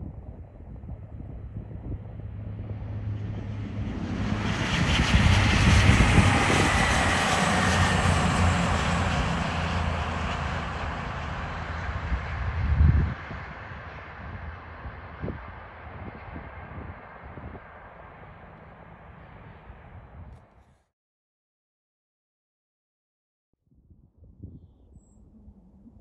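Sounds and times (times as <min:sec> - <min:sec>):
diesel train passing: 0:02.2 - 0:20.2.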